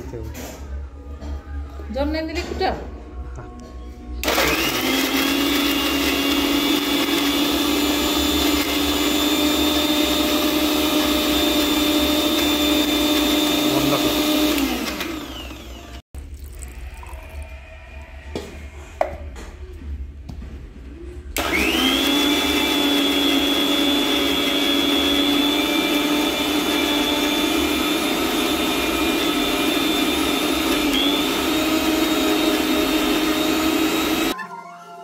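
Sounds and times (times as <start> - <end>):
mixer grinder motor whining: 4.2 - 16.0, 21.4 - 34.4.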